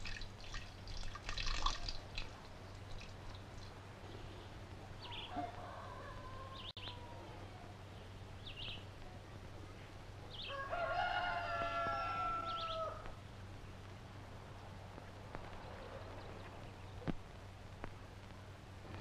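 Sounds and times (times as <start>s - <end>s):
rooster crowing: 5.1s - 7.7s, 10.4s - 13.2s.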